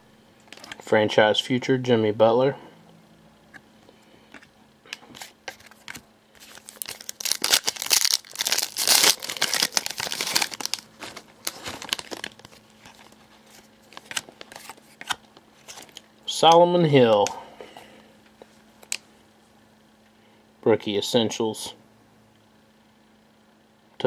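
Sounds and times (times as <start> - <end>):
foil wrapper crinkling and tearing: 5.2 - 16.0.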